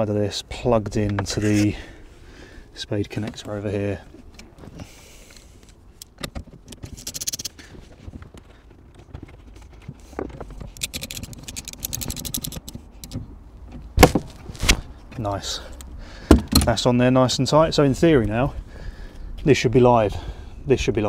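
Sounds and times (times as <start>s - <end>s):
ratchet spanner clicking: 6.8s - 7.6s, 10.7s - 13.2s.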